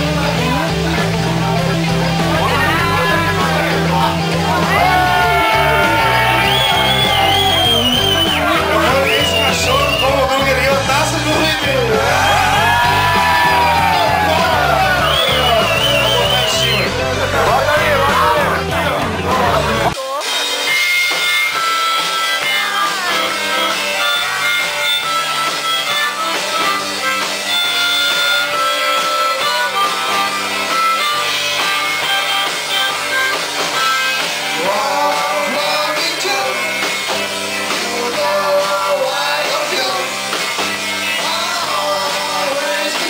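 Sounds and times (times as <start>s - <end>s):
rock band playing: 0.0s - 43.0s
harmonica notes: 0.2s - 42.4s
person singing: 1.8s - 27.2s, 34.5s - 36.9s, 37.5s - 40.3s, 41.0s - 43.0s.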